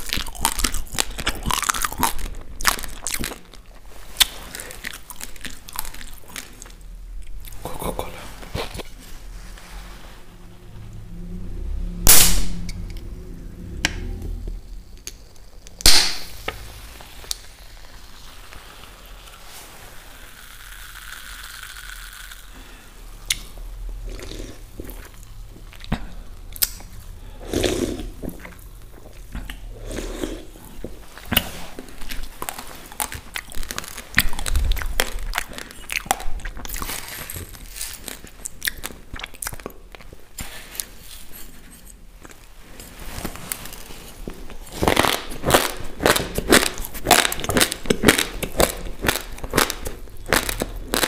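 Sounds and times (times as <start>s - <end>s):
fizzing hiss of soda: 16.6s - 23.2s.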